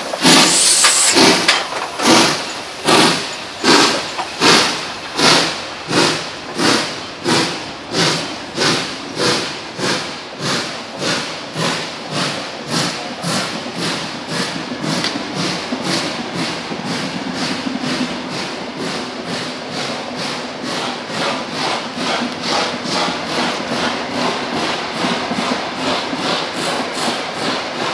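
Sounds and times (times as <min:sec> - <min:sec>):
steam locomotive exhaust chuffs: 0:00.0 - 0:27.9.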